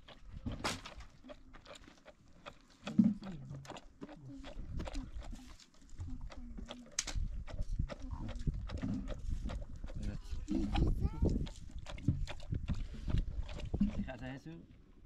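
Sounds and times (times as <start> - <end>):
wooden pestle pounding: 7.5 - 14.2.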